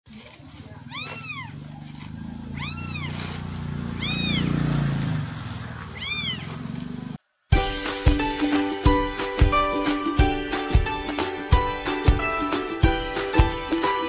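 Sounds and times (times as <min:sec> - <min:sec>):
kitten mews: 0:02.5 - 0:03.2, 0:04.0 - 0:04.5, 0:06.0 - 0:06.5.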